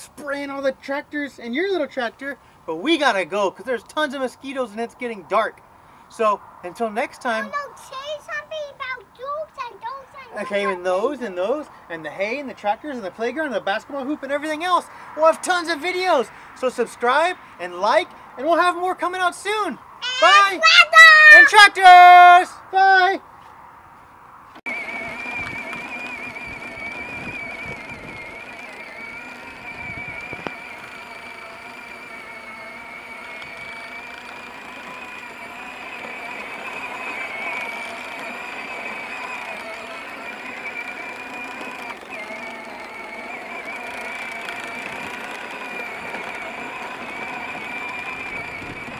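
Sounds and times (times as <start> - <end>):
electric toy tractor motor whining: 9.6 - 11.6, 20.0 - 21.5, 24.6 - 48.9.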